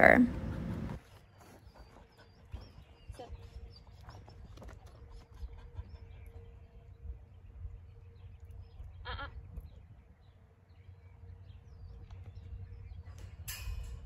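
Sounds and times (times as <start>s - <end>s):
low rumble: 0.0s - 1.0s.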